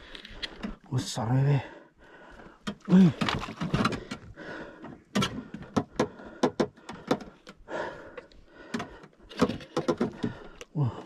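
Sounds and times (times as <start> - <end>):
sharp knocks and clicks: 2.6 - 7.6, 8.6 - 10.7.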